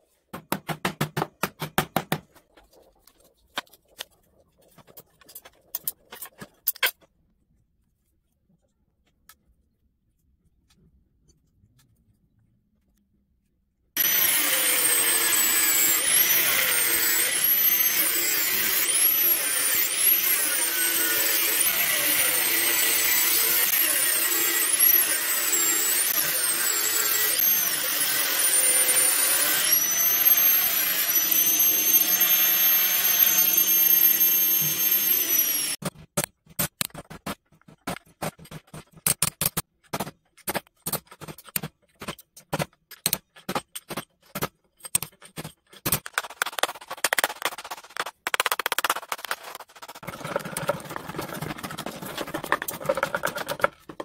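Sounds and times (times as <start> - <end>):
angle grinder cutting copper: 14.0 - 35.8, 48.0 - 54.0.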